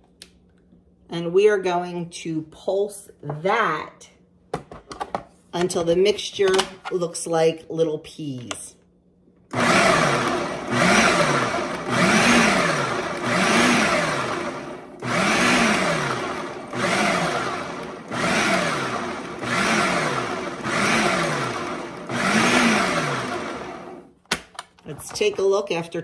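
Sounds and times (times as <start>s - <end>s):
food processor motor whine: 9.5s - 24.1s.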